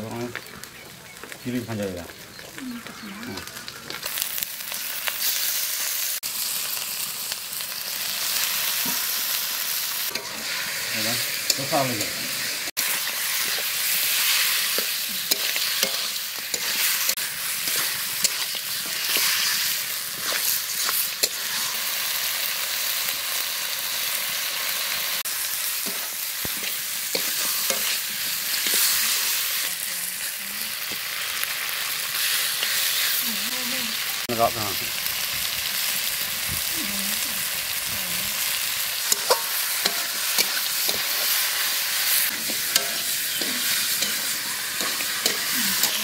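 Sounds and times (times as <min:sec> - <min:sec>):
chicken sizzling in a pan: 0:00.0 - 0:46.0
metal spatula scraping: 0:10.1 - 0:21.9, 0:25.8 - 0:29.1, 0:39.0 - 0:46.0.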